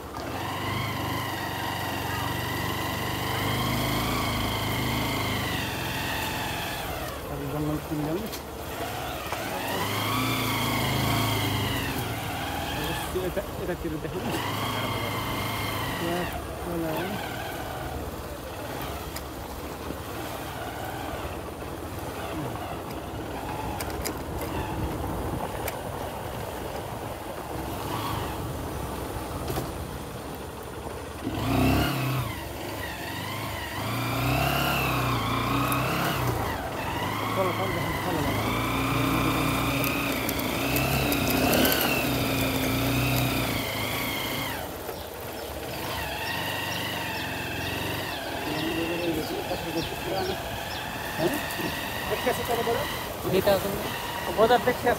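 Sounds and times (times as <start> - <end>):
low road rumble: 0.0 - 54.9
vehicle engine running: 0.0 - 54.9
sharp clicks and rattles: 23.7 - 24.5, 39.0 - 44.0.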